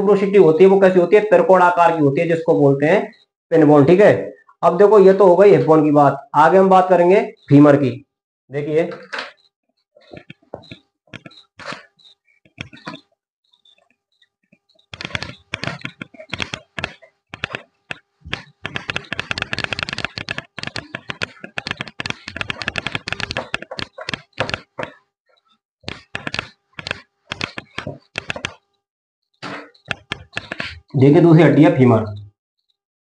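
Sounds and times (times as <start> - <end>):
cloth rubbing on whiteboard: 10.0 - 13.1.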